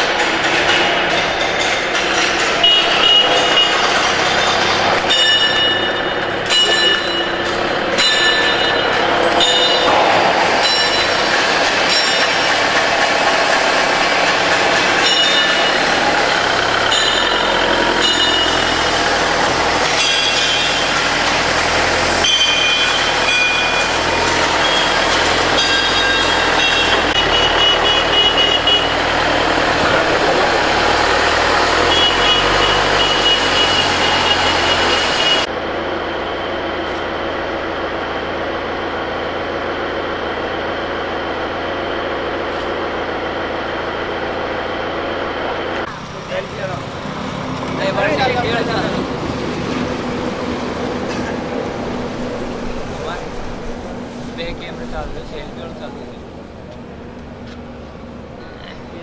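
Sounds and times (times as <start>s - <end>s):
forklift engine droning: 0.0s - 59.0s
reversing alarm beeping: 15.0s - 29.2s, 31.2s - 35.5s.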